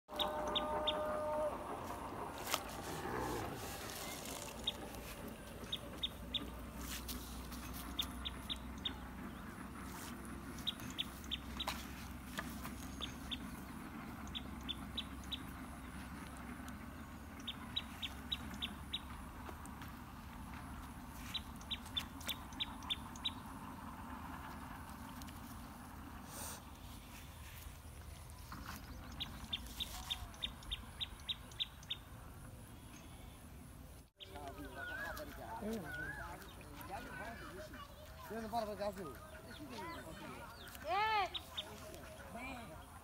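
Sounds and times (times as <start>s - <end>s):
small bird chirping: 21.2s - 23.6s, 28.6s - 32.1s.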